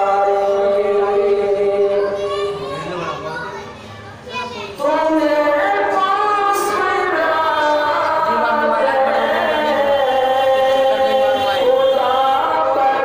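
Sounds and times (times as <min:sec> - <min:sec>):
man singing unaccompanied: 0:00.0 - 0:02.2, 0:04.8 - 0:13.0.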